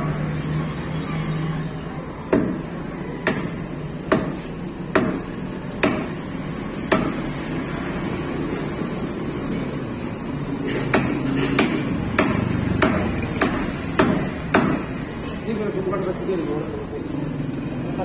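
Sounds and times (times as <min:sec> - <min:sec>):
cleaver chopping on wooden block: 0:03.2 - 0:06.2, 0:06.8 - 0:07.2, 0:10.9 - 0:14.9.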